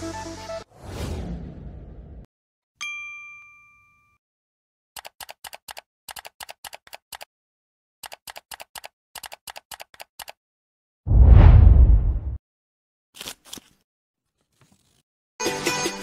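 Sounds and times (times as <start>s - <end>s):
chime: 2.8s - 4.2s.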